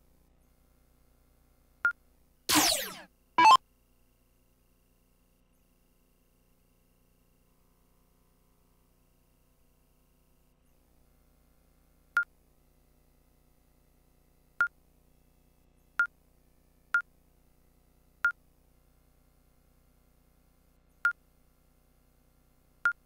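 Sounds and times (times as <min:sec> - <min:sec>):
electronic machine beeps: 0:02.5 - 0:03.6.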